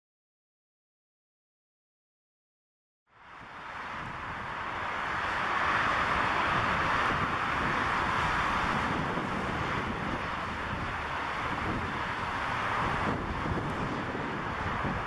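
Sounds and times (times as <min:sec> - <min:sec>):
wind buffeting microphone: 0:03.4 - 0:15.0
jet engine rushing: 0:03.6 - 0:15.0.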